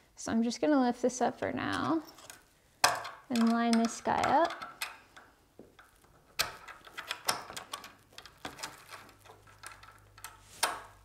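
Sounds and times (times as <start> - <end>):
metal clicks and clinks: 2.2 - 10.8.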